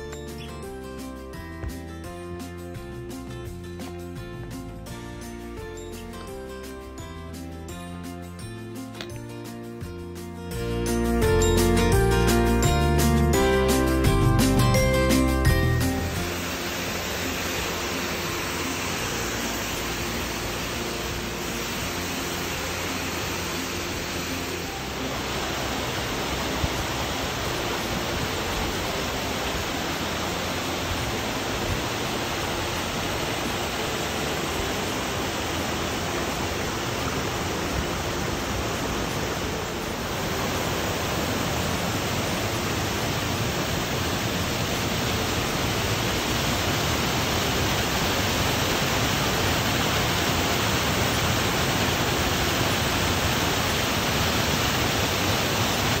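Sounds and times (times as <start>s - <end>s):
waterfall rushing over rock: 15.3s - 56.0s.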